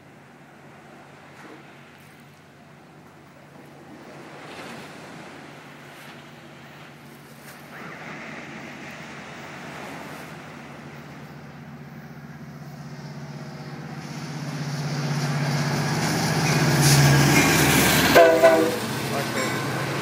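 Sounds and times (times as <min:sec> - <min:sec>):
diesel train passing: 0:00.0 - 0:20.0
train horn blasting: 0:14.0 - 0:20.0.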